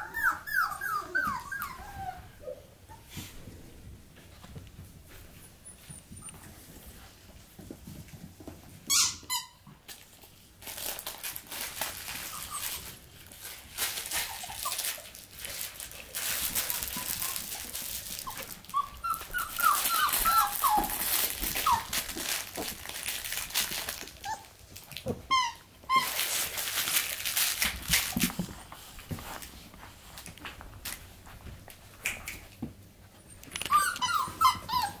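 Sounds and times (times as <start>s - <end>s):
puppies yipping and whimpering: 0.0s - 3.1s, 14.0s - 15.2s, 16.4s - 22.1s, 33.2s - 35.0s
paws rustling on blankets: 0.0s - 8.8s, 10.0s - 25.0s, 25.9s - 35.0s.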